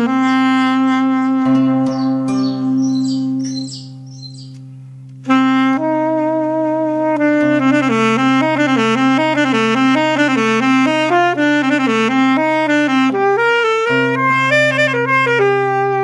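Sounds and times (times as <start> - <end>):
low held note: 0.0 - 11.8
saxophone melody: 0.0 - 16.0.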